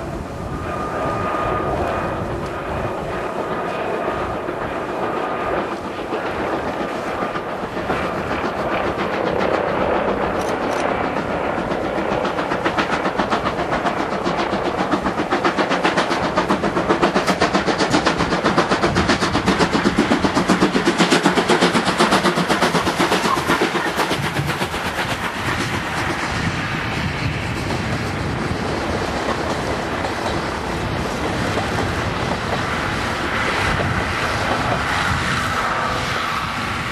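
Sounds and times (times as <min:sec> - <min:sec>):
steam locomotive exhaust beating: 0:00.0 - 0:36.9
train wheels clattering: 0:02.3 - 0:36.9.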